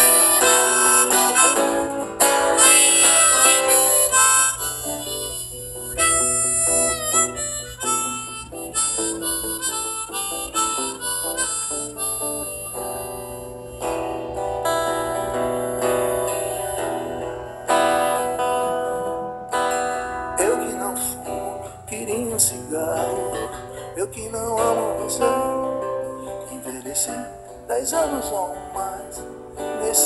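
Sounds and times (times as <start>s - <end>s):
harmonica melody: 0.0s - 30.0s
strummed acoustic guitar: 0.0s - 30.0s.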